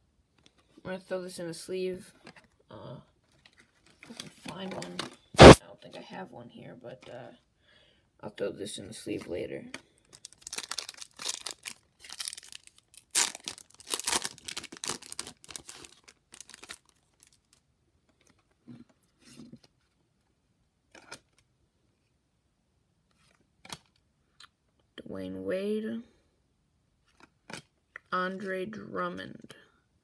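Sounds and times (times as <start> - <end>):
cards rustling: 9.2 - 17.6
foil wrapper tearing and crinkling: 10.0 - 17.6.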